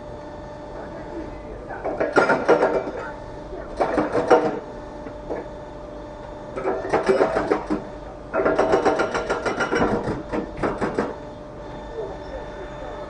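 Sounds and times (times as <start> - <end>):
steady hum: 0.0 - 13.0
hydraulic hammer rattling blows: 6.6 - 11.2.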